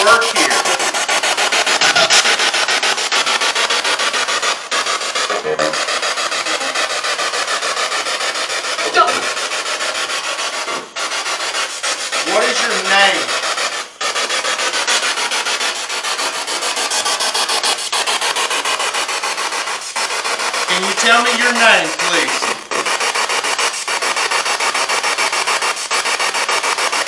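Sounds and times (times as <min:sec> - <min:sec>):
broadcast voice: 0:00.0 - 0:00.8, 0:08.8 - 0:09.4, 0:12.2 - 0:13.3, 0:20.7 - 0:22.6
radio static sweeping: 0:00.0 - 0:09.6, 0:11.9 - 0:13.4, 0:20.7 - 0:22.7.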